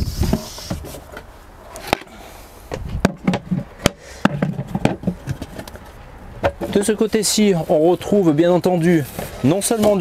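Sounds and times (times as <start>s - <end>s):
boxes and panels knocking: 3.0s - 5.5s.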